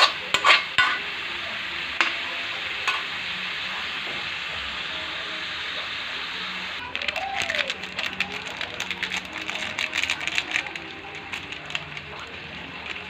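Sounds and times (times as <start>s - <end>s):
chicken sizzling in a wok: 0.0s - 13.0s
loud crackling and spattering: 6.7s - 13.0s.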